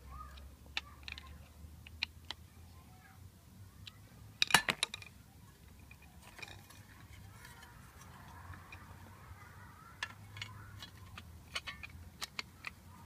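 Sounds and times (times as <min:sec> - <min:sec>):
metal parts clinking: 0:04.4 - 0:05.1, 0:05.7 - 0:08.9, 0:10.0 - 0:13.0.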